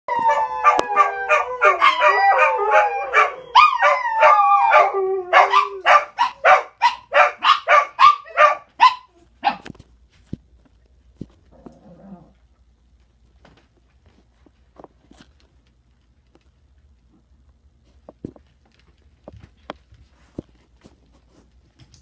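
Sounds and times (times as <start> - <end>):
dog howling: 0.1 - 6.1
dogs barking: 0.2 - 9.7.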